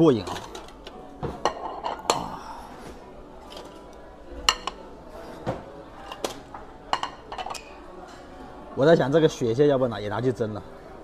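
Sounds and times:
ceramic plates clinking: 1.4s - 2.2s.

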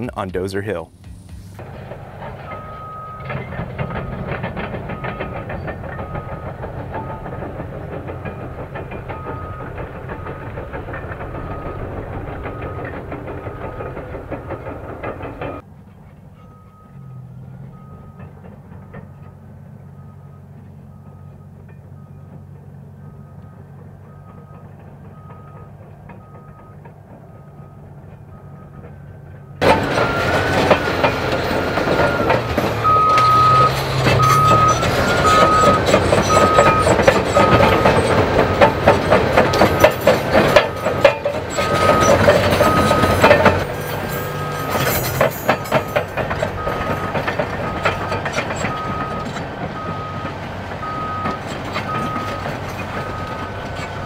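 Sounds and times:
diesel engine: 0.0s - 54.0s
distant engine rumble: 0.0s - 54.0s
metallic track chain clatter: 1.6s - 15.6s, 29.6s - 54.0s
reversing alarm beeping: 1.8s - 15.6s, 16.4s - 54.0s.

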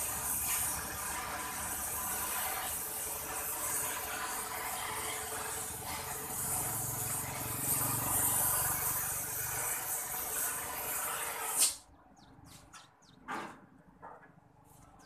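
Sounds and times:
gas torch hissing: 0.0s - 11.8s
torch shut-off pop: 11.2s - 11.8s.

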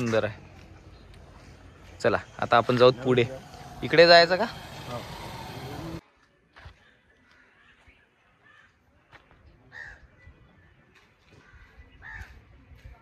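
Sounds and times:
crow cawing faintly: 6.8s - 8.8s, 9.7s - 10.1s, 11.3s - 12.5s.

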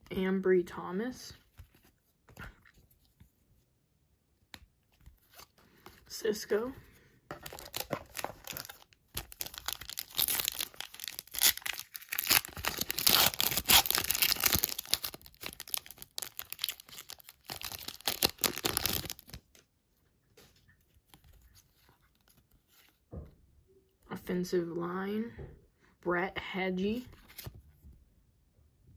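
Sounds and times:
card pack wrapper tearing: 7.3s - 19.5s.

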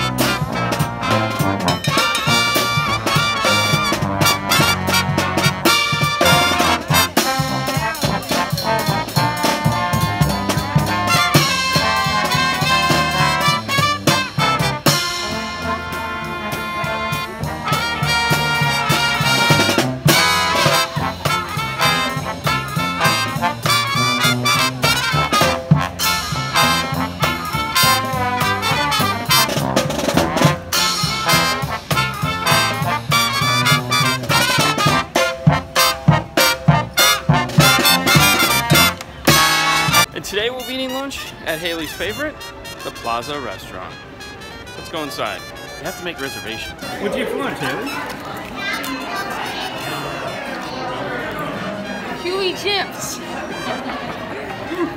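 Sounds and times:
upbeat brass swing music: 0.0s - 48.7s, 51.4s - 54.9s.

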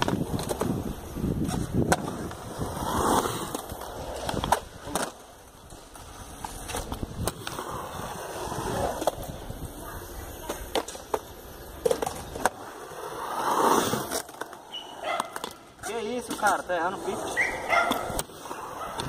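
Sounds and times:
skateboard clacking on ground: 0.0s - 7.8s, 8.6s - 12.8s, 13.8s - 19.0s
skateboard wheels rolling on concrete: 0.0s - 19.0s.

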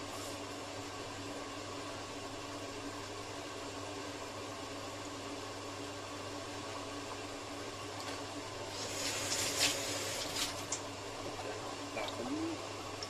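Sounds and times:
steady mechanical hum: 0.0s - 13.0s
wet rubbing of oysters: 8.7s - 10.8s.

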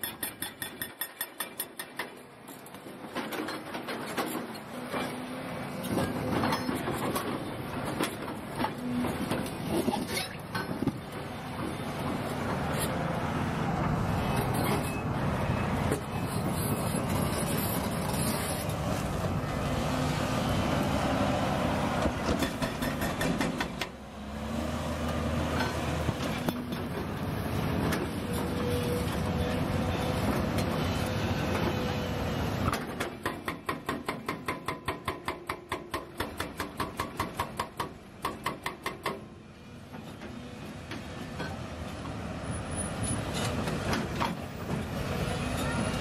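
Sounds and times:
metal clanks and rattles: 0.0s - 5.2s, 5.8s - 11.0s.

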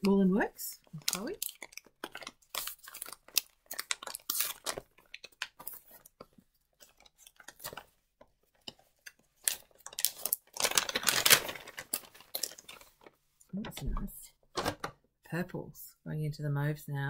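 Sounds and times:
wrapping paper crinkling and tearing: 0.1s - 13.2s.

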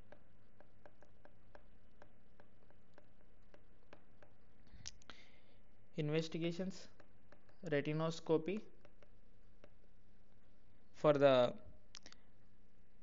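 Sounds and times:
stylus tapping on glass screen: 0.0s - 4.6s, 6.5s - 10.0s
low steady hum: 0.0s - 13.0s.

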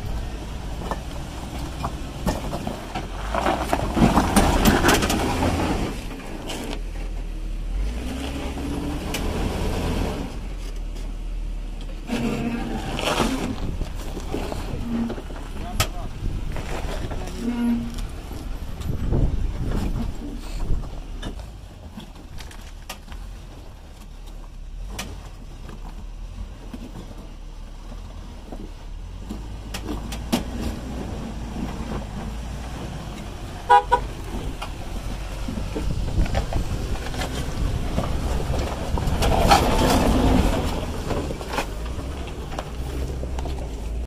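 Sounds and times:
car horn toots: 33.6s - 34.2s.

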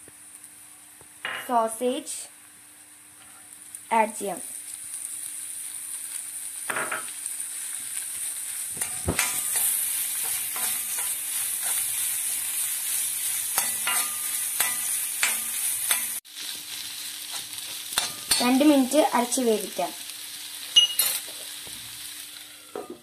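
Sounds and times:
sausage sizzling in oil: 0.0s - 23.0s
metal spatula scraping pan: 8.8s - 11.9s, 13.6s - 16.2s.

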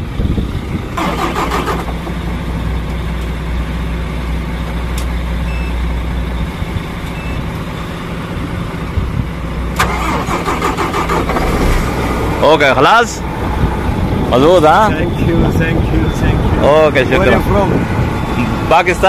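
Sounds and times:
truck engine hum: 0.0s - 19.0s
truck engine cranking: 0.5s - 7.8s, 9.7s - 15.0s
short high beeps: 5.5s - 5.8s, 7.1s - 7.4s.

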